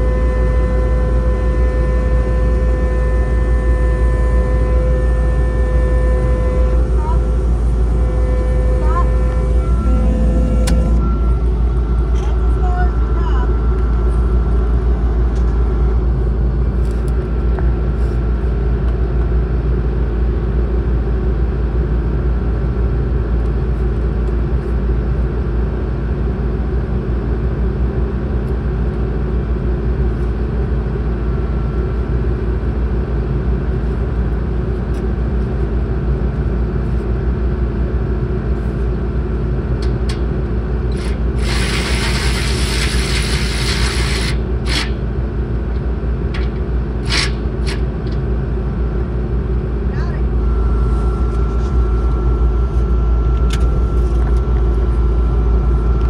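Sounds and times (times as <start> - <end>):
skid steer engine running: 0.0 - 56.0
handheld power tool running: 40.9 - 45.0, 46.4 - 47.9.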